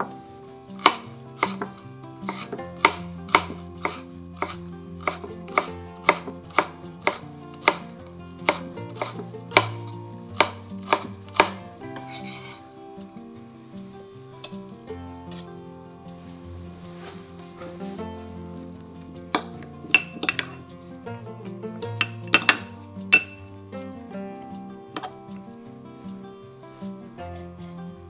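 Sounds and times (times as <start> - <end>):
knife chopping on wooden board: 0.8 - 7.9, 8.5 - 9.8, 10.4 - 12.4, 19.4 - 20.6, 22.0 - 23.4.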